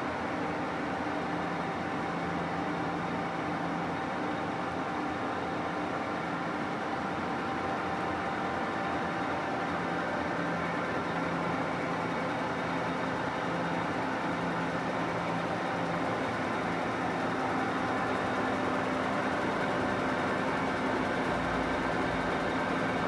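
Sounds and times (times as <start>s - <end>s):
workshop machinery humming: 0.0s - 23.0s.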